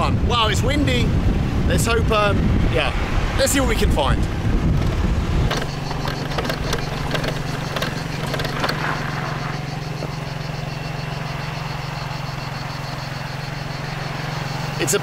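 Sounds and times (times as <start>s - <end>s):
scooter engine idling: 4.6s - 15.0s
light clicks and knocks: 4.8s - 8.9s.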